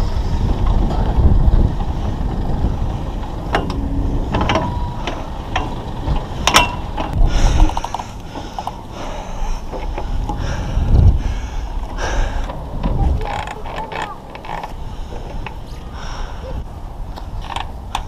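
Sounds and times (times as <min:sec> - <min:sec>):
rigging clicks and knocks: 0:03.2 - 0:08.8.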